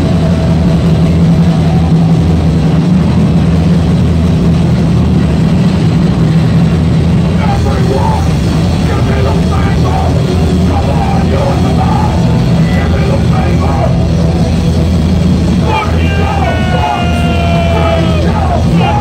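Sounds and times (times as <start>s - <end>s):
live punk rock band: 0.0s - 19.0s
person singing: 15.6s - 19.0s.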